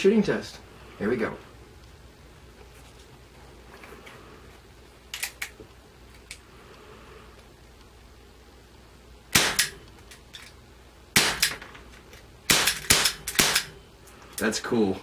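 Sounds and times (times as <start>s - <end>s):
pellet revolver shots: 9.3s - 9.8s, 11.1s - 11.7s, 12.4s - 13.8s.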